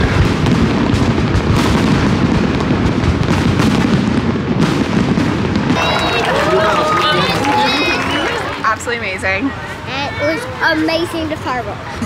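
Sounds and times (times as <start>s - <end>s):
aerial fireworks bangs and booms: 0.0s - 7.8s.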